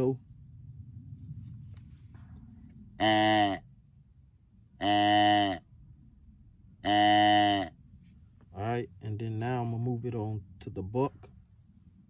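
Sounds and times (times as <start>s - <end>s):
crickets buzzing: 0.0s - 12.0s
deer call blown: 3.0s - 3.7s, 4.8s - 5.7s, 6.8s - 7.8s.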